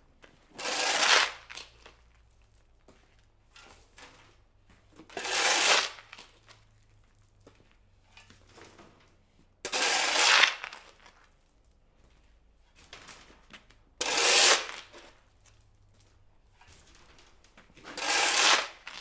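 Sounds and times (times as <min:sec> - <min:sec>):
shovel scraping across concrete: 0:00.3 - 0:02.0, 0:05.0 - 0:06.5, 0:09.6 - 0:11.1, 0:14.0 - 0:15.2, 0:16.6 - 0:19.0.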